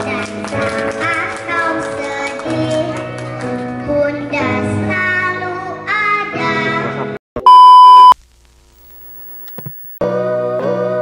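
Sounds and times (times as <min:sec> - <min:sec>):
girl singing into a microphone: 0:00.0 - 0:07.0
loud steady electronic beep: 0:07.4 - 0:08.2, 0:08.8 - 0:10.0.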